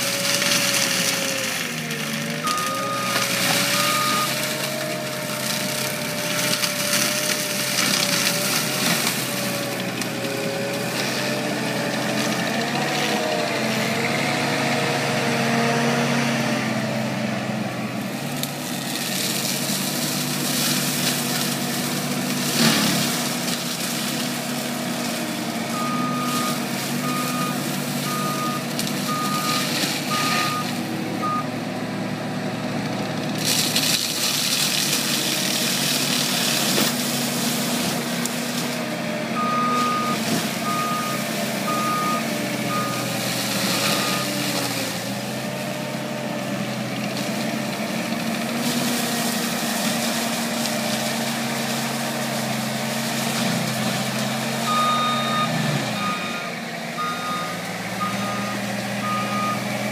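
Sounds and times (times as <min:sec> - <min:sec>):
diesel engine under load: 0:00.0 - 0:59.9
mulcher grinding brush: 0:00.0 - 0:59.9
back-up alarm beeping: 0:25.8 - 0:31.5, 0:54.7 - 0:59.7.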